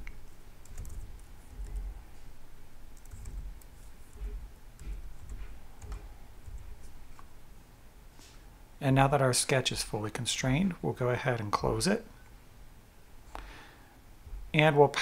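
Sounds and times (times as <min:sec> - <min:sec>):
computer keyboard typing: 0:00.6 - 0:02.0, 0:03.0 - 0:06.7.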